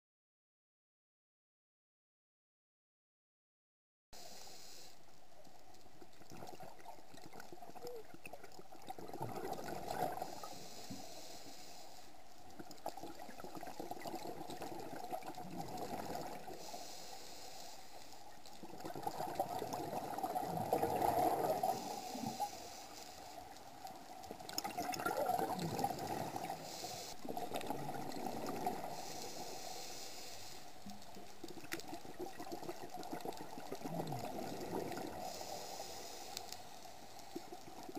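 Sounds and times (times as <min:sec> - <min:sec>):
faint regulator hiss: 0:04.2 - 0:08.3, 0:09.8 - 0:13.4, 0:14.4 - 0:18.8, 0:19.9 - 0:24.5, 0:25.8 - 0:32.1, 0:34.8 - 0:37.9
exhaled bubbles gurgling underwater: 0:06.0 - 0:10.7, 0:12.5 - 0:17.0, 0:18.4 - 0:22.8, 0:23.4 - 0:29.9, 0:30.7 - 0:36.0.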